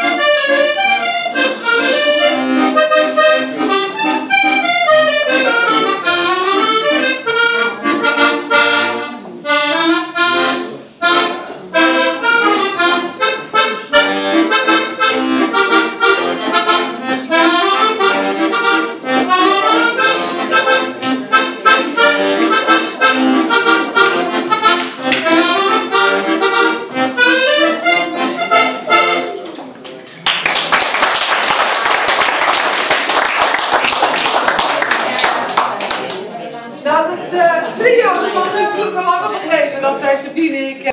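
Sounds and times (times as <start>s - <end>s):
accordion playing: 0.0s - 29.5s, 37.0s - 40.4s
audience applause: 30.2s - 36.2s.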